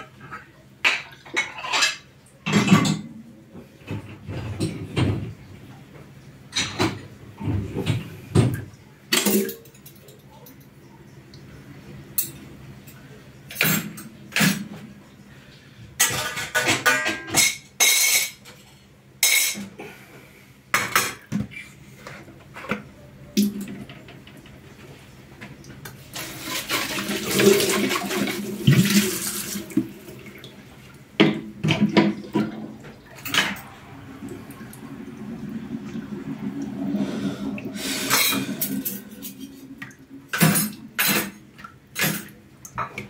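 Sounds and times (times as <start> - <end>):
dishes and cutlery clattering: 0.2 - 3.1, 6.5 - 10.8, 12.2 - 14.8, 16.0 - 19.8, 31.2 - 33.8, 38.0 - 43.0.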